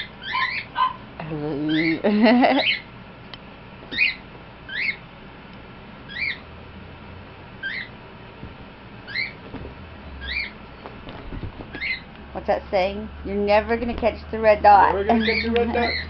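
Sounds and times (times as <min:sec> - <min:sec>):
small animal chirping: 0:00.0 - 0:01.0, 0:03.9 - 0:05.0, 0:06.1 - 0:06.4, 0:07.6 - 0:07.9, 0:09.1 - 0:09.4, 0:10.2 - 0:10.6, 0:11.8 - 0:12.1, 0:15.1 - 0:16.0.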